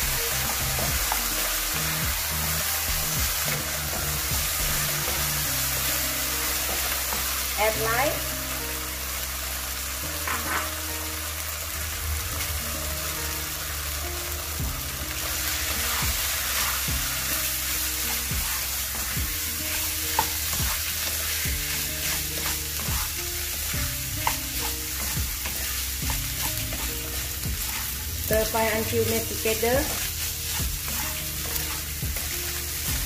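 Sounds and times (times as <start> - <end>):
food sizzling in a wok: 0.0 - 33.0
spatula scraping a pan: 10.2 - 10.8, 15.4 - 32.9.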